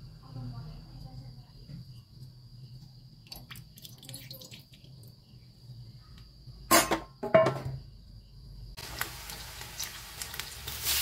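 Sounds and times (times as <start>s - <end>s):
high insect chirr: 0.0s - 11.0s
metal cookware clanking: 6.7s - 7.8s.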